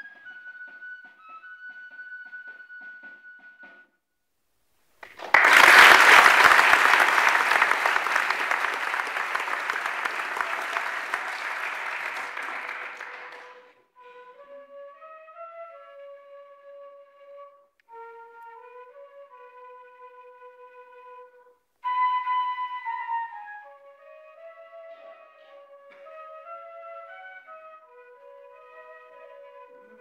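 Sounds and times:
flute band playing: 0.0 - 3.9, 6.2 - 30.0
audience applause: 5.0 - 13.7.

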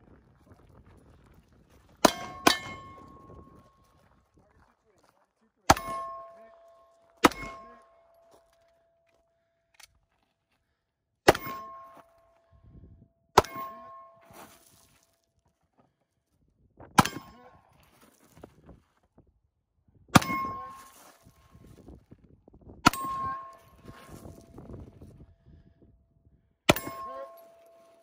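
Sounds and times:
steel target ringing: 2.0 - 3.5, 5.7 - 8.4, 11.3 - 12.2, 13.4 - 14.6, 20.2 - 21.4, 22.9 - 24.6, 26.7 - 28.0.

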